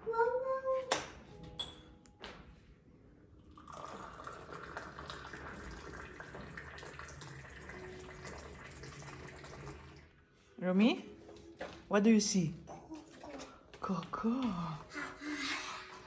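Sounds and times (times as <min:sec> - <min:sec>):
tea pouring into glass: 0:03.4 - 0:10.2.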